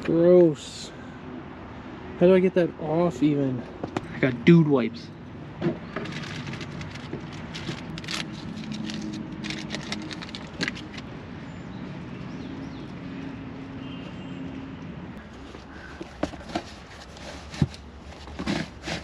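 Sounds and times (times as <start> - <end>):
vehicle engine humming: 2.8 - 17.0.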